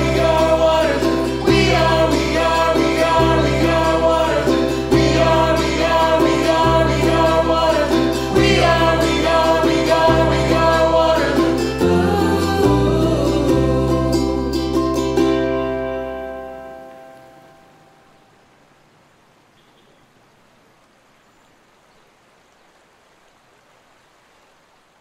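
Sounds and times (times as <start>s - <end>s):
voices singing: 0.0s - 15.0s
bass line: 0.0s - 17.0s
plucked strings: 0.0s - 18.0s.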